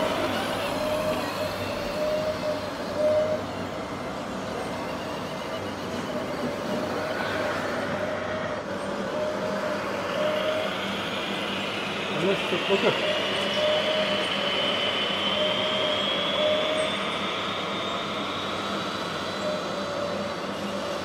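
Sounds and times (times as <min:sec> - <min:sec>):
faint high whine: 0:00.0 - 0:21.0
small motors whining: 0:00.0 - 0:21.0.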